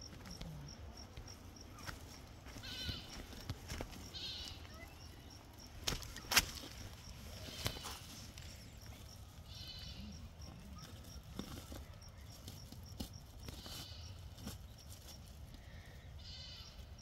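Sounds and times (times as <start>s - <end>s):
goats bleating: 2.5s - 3.2s, 4.1s - 4.6s, 9.5s - 10.2s
faint high chirping: 4.0s - 6.3s.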